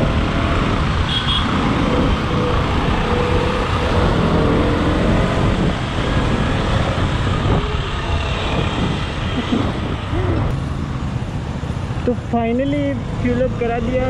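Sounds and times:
wind buffeting microphone: 0.0 - 10.6
city traffic: 0.0 - 14.0.

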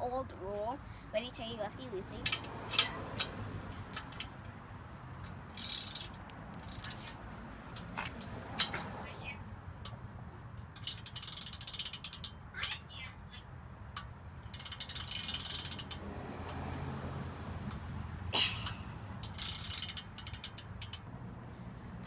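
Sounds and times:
ratcheting wrench clicking: 2.2 - 4.5, 5.2 - 7.2, 10.6 - 12.8, 13.9 - 16.0, 18.6 - 21.1.

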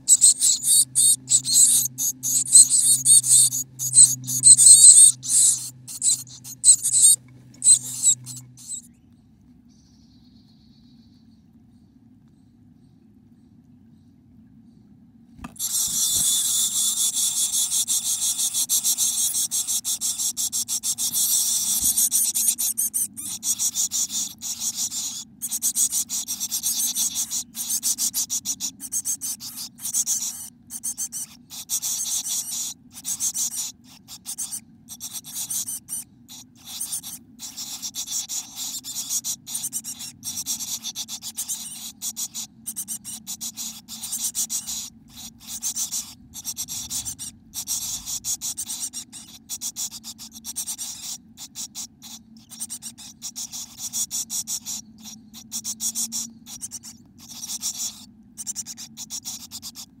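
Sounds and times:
scratchy rustling in nest box: 0.0 - 8.8, 15.4 - 50.2.

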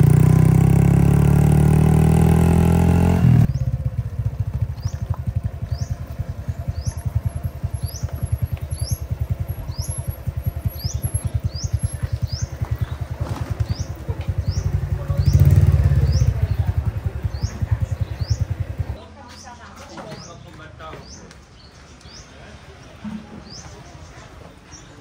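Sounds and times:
small engine chugging: 0.0 - 19.0
bird chirping: 2.4 - 22.4.

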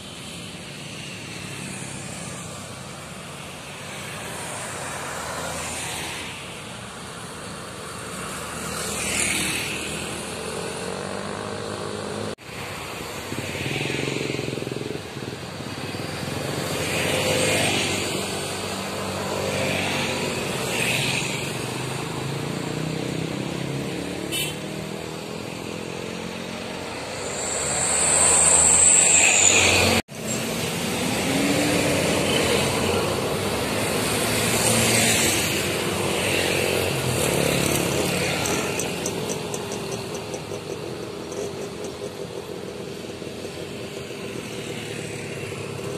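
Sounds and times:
road traffic passing: 0.0 - 45.9
high-pitched squeal: 24.3 - 33.0.

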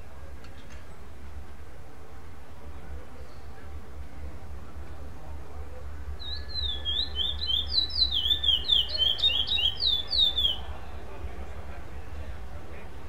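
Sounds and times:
bird singing whistled notes: 6.2 - 10.7.

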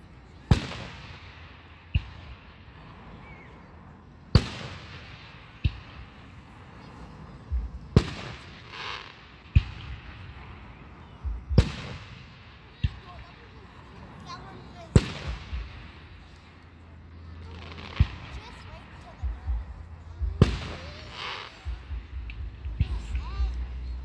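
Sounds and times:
firework shells booming: 4.3 - 6.8, 7.4 - 16.6, 17.4 - 23.7.

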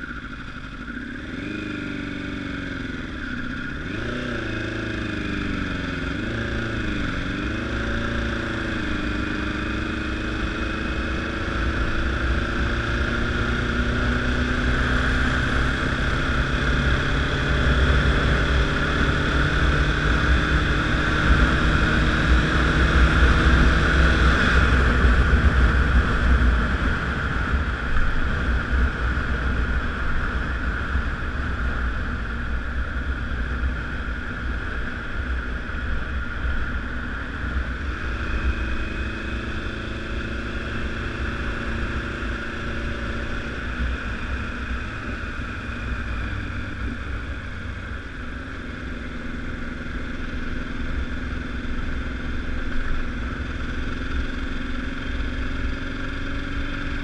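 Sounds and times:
motorcycle engine accelerating: 0.0 - 57.0.

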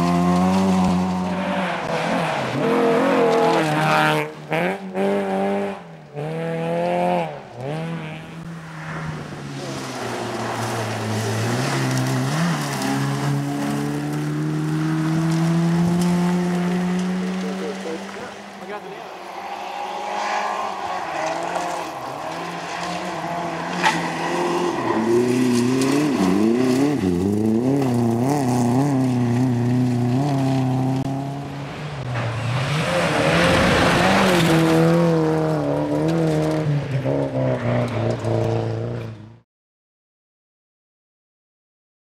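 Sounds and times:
tyres on gravel: 0.0 - 4.0, 8.7 - 38.4
rally car engines revving: 0.0 - 39.4.

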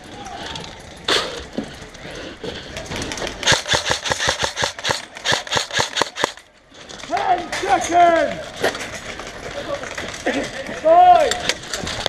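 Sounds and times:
airsoft rifle rapid firing: 3.4 - 6.4.

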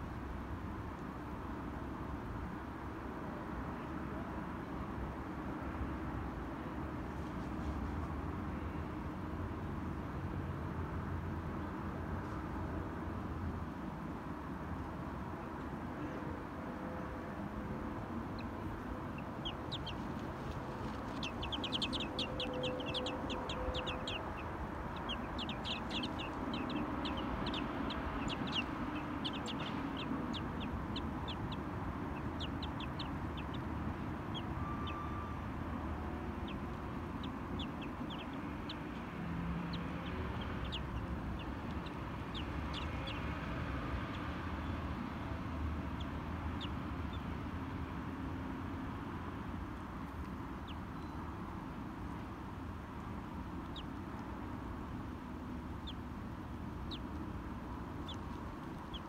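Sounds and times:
low background rumble: 17.4 - 47.2, 51.7 - 59.0
small birds chirping: 17.6 - 59.0.

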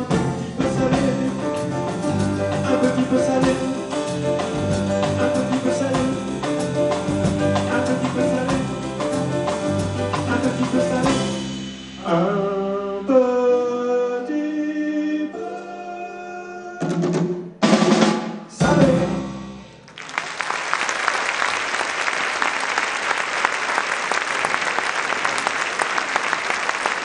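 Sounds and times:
person singing: 0.0 - 9.4, 10.0 - 11.4, 12.0 - 17.1, 18.5 - 19.4
live salsa jazz band: 0.0 - 12.3
audience applause: 19.9 - 27.0.

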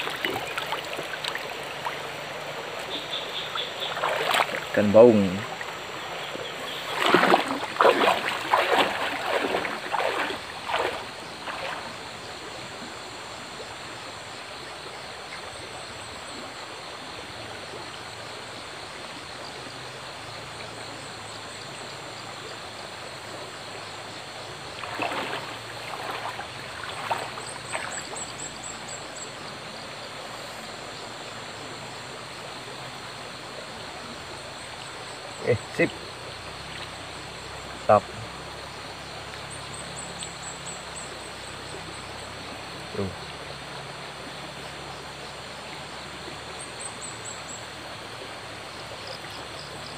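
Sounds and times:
water splashing and dripping: 0.0 - 12.9, 24.6 - 29.0, 34.2 - 38.6, 39.2 - 49.9
forest stream flowing: 0.0 - 49.9.

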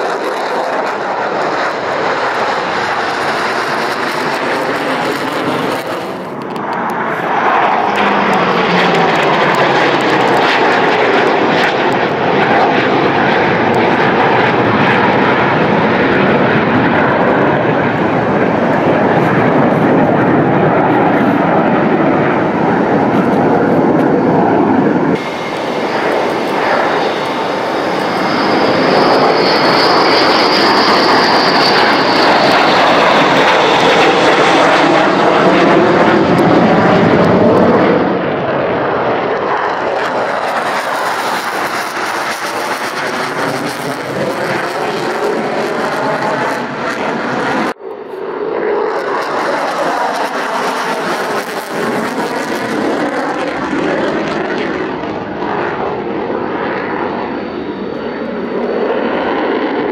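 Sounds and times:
loud jet engine noise: 0.0 - 59.9.

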